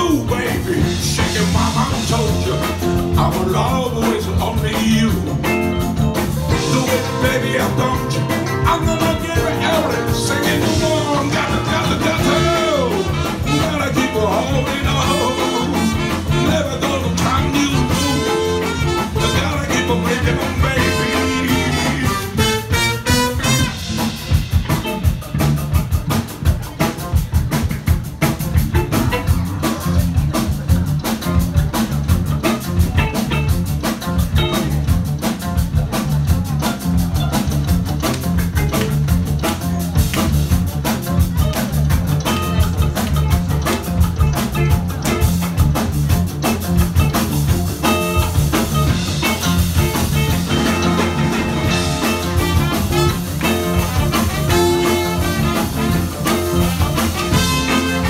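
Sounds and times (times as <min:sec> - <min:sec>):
live band playing upbeat music: 0:00.0 - 0:58.0
bending melody line: 0:00.1 - 0:25.1, 0:47.8 - 0:58.0.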